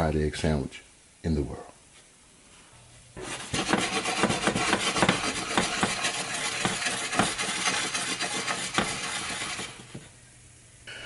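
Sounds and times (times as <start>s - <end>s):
bread slices scraping in pan: 3.2s - 10.1s
butter sizzling in skillet: 3.2s - 10.1s.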